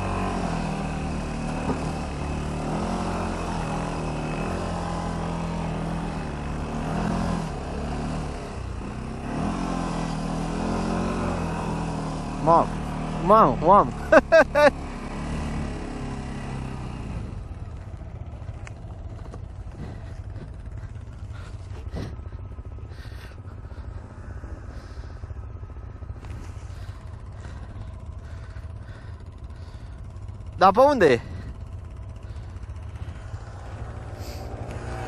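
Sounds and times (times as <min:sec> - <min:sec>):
atv engine idling: 0:00.0 - 0:35.0.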